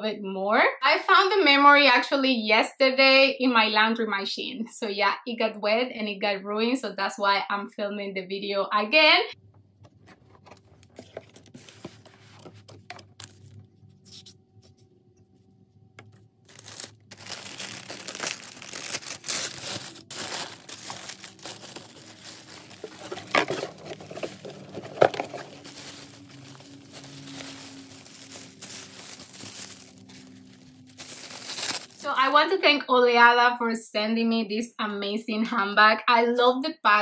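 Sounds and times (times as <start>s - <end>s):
paper crinkling: 10.0s - 14.8s, 16.0s - 32.4s
sharp paper crackles: 10.1s - 14.4s, 16.0s - 32.3s
tissue paper rustling: 10.1s - 14.4s, 16.5s - 32.4s.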